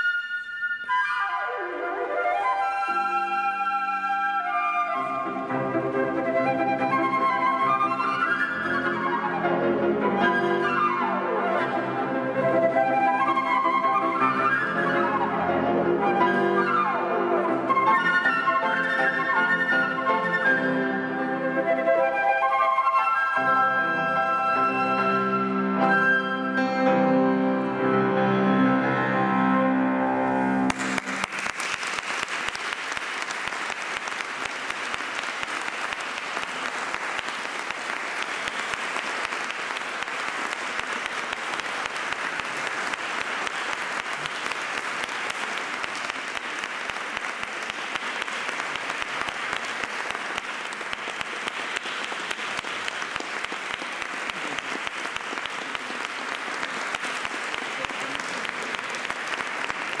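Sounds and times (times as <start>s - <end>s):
music: 0.0s - 31.4s
concert audience applauding: 10.2s - 15.4s, 30.6s - 60.0s.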